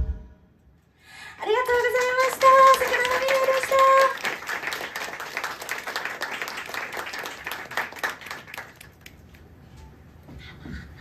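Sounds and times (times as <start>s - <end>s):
audience applauding: 1.6s - 9.5s.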